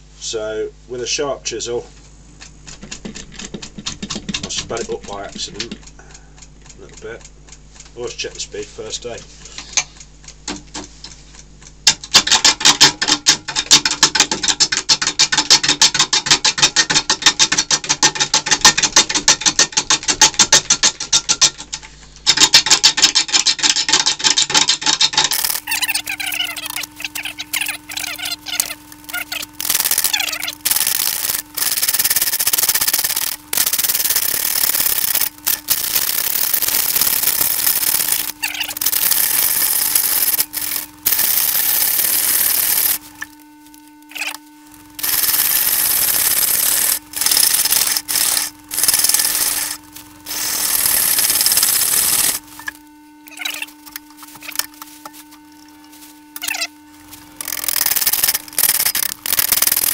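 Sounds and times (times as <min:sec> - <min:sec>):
lathe motor hum: 0:25.3 - 0:53.0.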